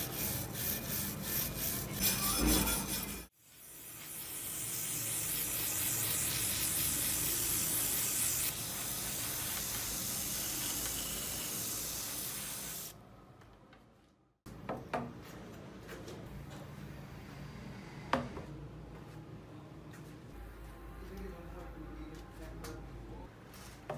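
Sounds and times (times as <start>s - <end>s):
aerosol can spraying: 3.4s - 12.9s.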